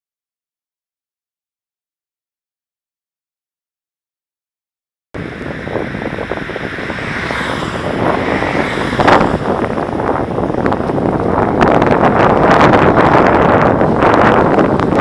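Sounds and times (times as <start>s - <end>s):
passing car traffic noise: 5.2s - 15.0s
wind rushing over microphone: 5.2s - 15.0s.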